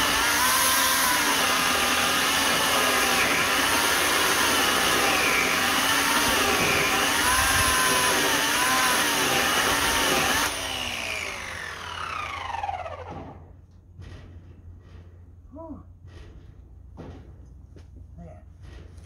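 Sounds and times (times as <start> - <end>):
electric chainsaw cutting log: 0.0 - 13.5
motor winding down whine: 3.0 - 13.5.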